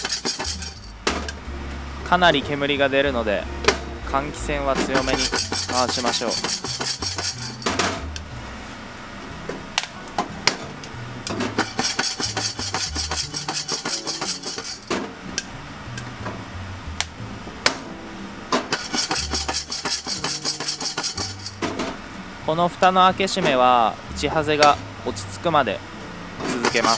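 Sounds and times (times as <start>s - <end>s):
beans rattling in shaken pot: 0.0s - 0.9s, 5.1s - 7.7s, 18.8s - 21.6s, 26.6s - 26.9s.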